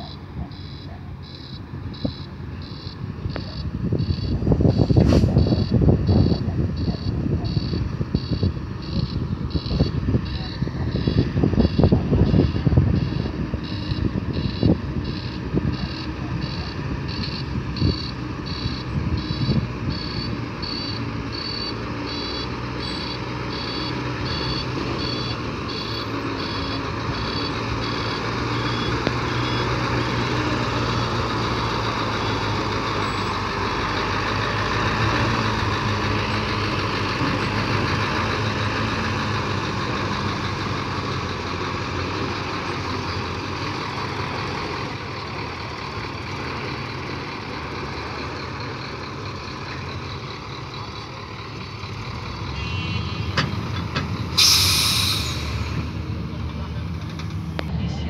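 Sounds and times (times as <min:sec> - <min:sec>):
reversing beeper: 0:00.0 - 0:35.4, 0:52.4 - 0:53.6
diesel truck engine: 0:00.0 - 0:58.0.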